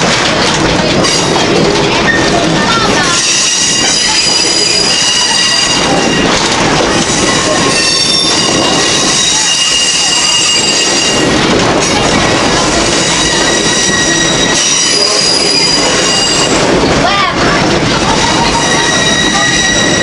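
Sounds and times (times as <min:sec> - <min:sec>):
railroad car rumbling on track: 0:00.0 - 0:20.0
train wheels squealing on rails: 0:00.9 - 0:16.8, 0:18.0 - 0:20.0.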